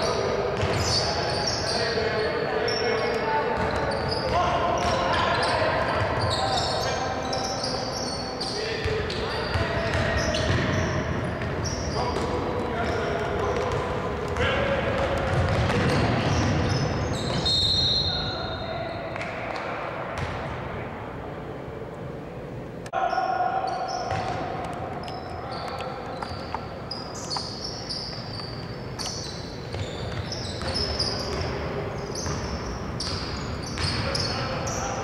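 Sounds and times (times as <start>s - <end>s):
sneakers squeaking: 0.0s - 20.6s, 23.1s - 35.0s
ball bouncing on hardwood court: 8.8s - 17.4s, 19.2s - 20.5s, 24.1s - 26.5s.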